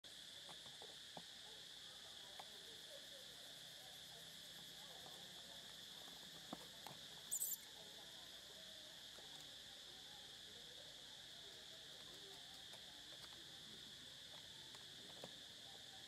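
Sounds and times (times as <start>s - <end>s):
insects droning: 0.1s - 16.0s
very high chirp: 7.3s - 7.6s.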